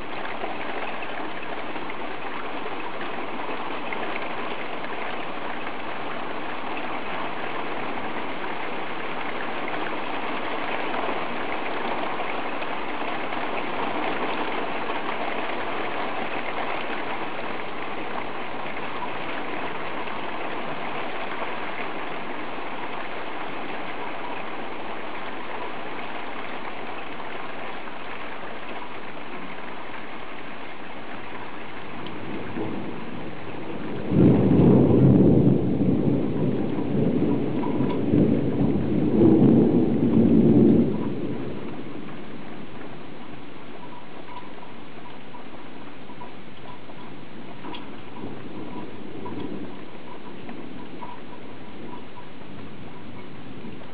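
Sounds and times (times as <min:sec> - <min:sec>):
heavy rain falling: 0:00.0 - 0:53.9
loud thunderclap: 0:32.0 - 0:42.8, 0:47.4 - 0:53.9.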